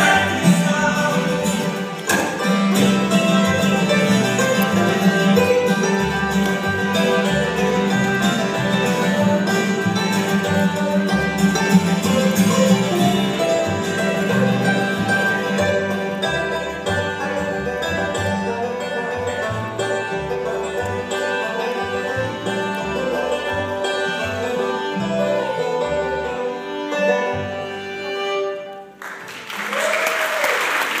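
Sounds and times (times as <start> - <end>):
plucked upright bass: 0.0 - 28.7
bluegrass band playing: 0.0 - 30.4
audience applause and cheer: 28.8 - 31.0.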